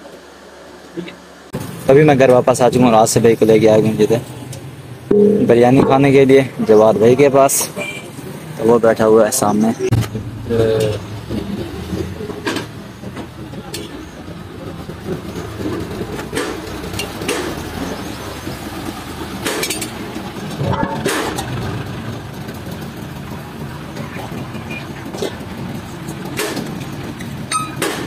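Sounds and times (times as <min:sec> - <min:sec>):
low mechanical rumble: 0:00.0 - 0:07.5, 0:09.8 - 0:28.0
sharp clicks and knocks: 0:26.2 - 0:28.0.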